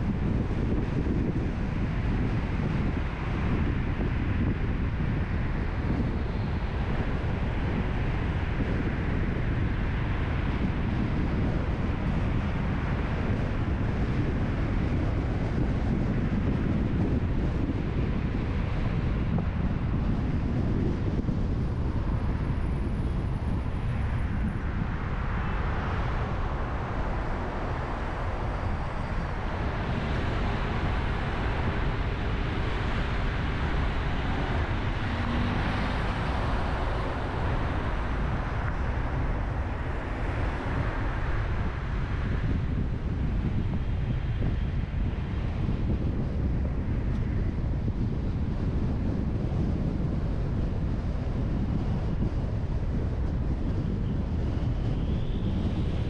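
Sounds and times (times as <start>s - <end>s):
road and wind noise: 0.0s - 56.0s
car driving rumble: 18.6s - 44.2s.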